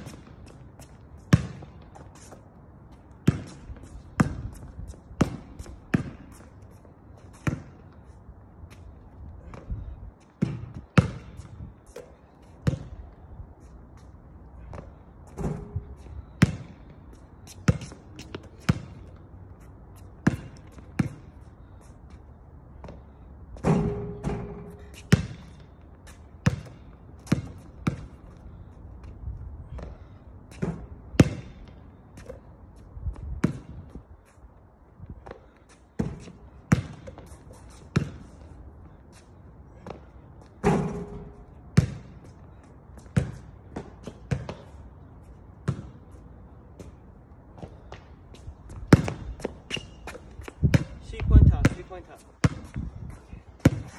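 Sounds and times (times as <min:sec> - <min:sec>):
basketball bouncing on hard court: 0:01.3 - 0:01.8, 0:03.2 - 0:04.6, 0:05.2 - 0:06.4, 0:10.4 - 0:13.0, 0:14.7 - 0:16.8, 0:17.7 - 0:19.1, 0:20.2 - 0:21.3, 0:23.6 - 0:25.6, 0:26.4 - 0:28.3, 0:29.7 - 0:31.7, 0:33.4 - 0:33.9, 0:35.2 - 0:37.3, 0:37.9 - 0:38.3, 0:39.8 - 0:42.3, 0:43.0 - 0:44.8, 0:45.6 - 0:46.0, 0:48.7 - 0:53.9
ball striking hoop: 0:23.6 - 0:25.4, 0:40.6 - 0:42.1.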